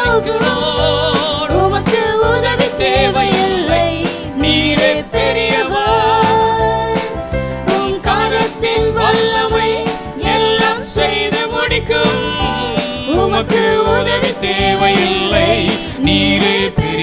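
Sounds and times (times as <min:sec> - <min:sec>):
person singing: 0:00.0 - 0:06.6, 0:10.2 - 0:17.0
band playing worship song: 0:00.0 - 0:17.0.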